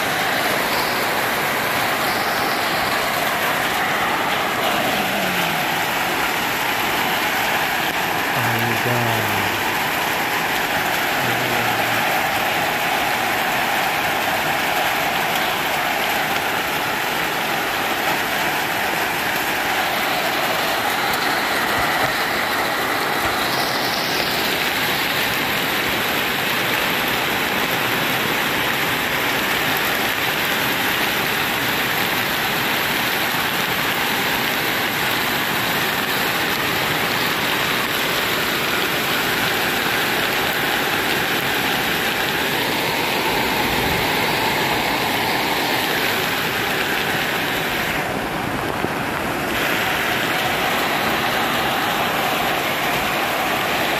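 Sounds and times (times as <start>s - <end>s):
rain on a metal roof: 0.0s - 53.9s.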